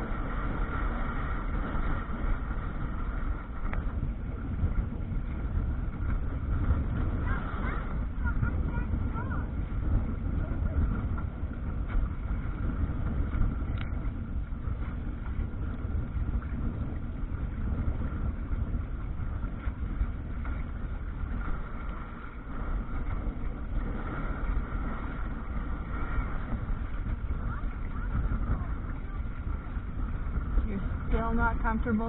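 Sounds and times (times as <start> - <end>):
water rushing along hull: 0.0 - 32.0
wind buffeting microphone: 0.0 - 32.0.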